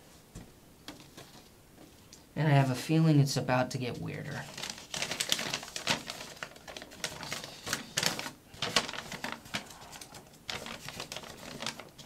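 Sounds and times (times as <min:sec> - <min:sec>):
paper crackling and rustling: 0:04.0 - 0:12.0.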